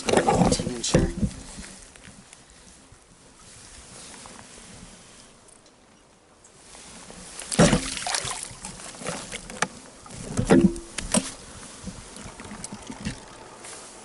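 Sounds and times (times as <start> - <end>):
bumps in an inflatable boat: 0.0 - 1.5, 7.5 - 13.4
rustling: 6.6 - 14.0
water splashing: 7.3 - 13.9.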